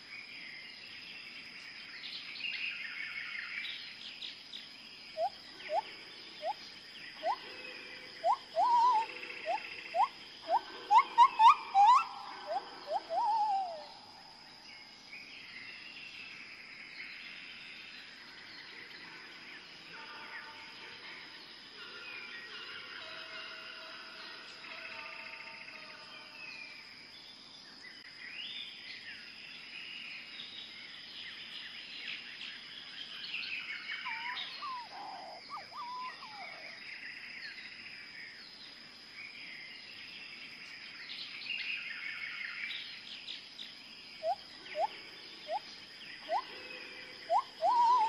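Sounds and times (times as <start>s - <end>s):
birds chirping and calling: 5.1s - 14.2s, 33.3s - 37.0s, 41.2s - 48.0s
short rising bird calls: 47.3s - 48.0s.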